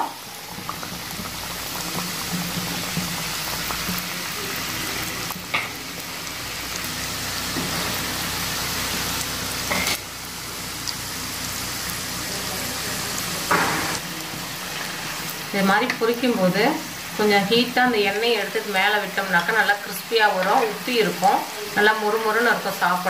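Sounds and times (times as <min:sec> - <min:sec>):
pastries deep-frying in oil: 0:00.0 - 0:23.0.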